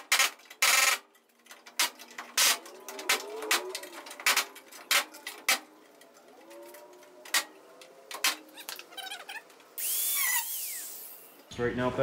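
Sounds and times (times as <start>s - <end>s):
metallic clicks and knocks: 0.0s - 9.8s
faint squeaky glides: 6.3s - 10.4s
drill high whine: 9.8s - 11.3s.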